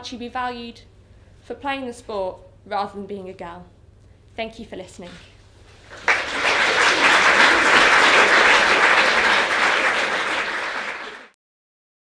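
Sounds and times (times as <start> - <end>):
audience applauding: 5.9 - 11.4.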